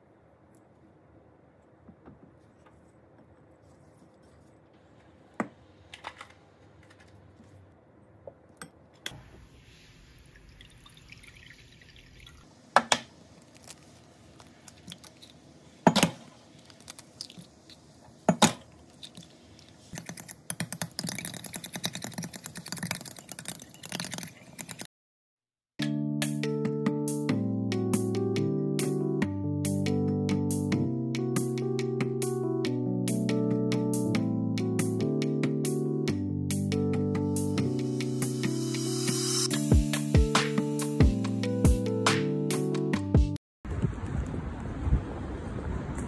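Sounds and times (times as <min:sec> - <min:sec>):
soft pour: 0:09.7 - 0:12.5
eggs beaten in glass cup: 0:20.0 - 0:24.8.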